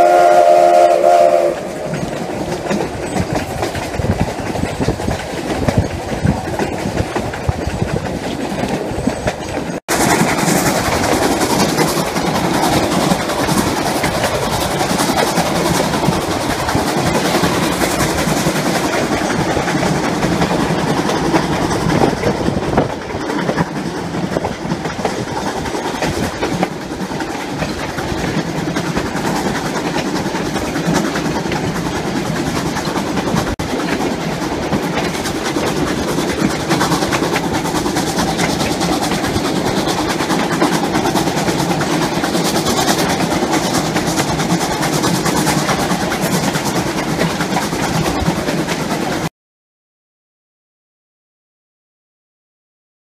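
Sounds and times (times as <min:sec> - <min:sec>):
fast clicking of rails: 0:00.0 - 0:49.3
train wheels on track: 0:00.0 - 0:49.3.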